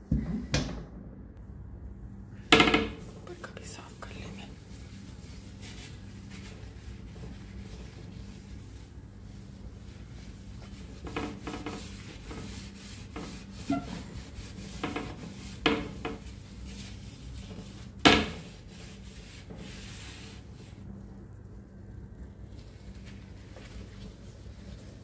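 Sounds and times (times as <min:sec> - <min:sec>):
sharp scrapes and squeaks: 0:13.2 - 0:15.2.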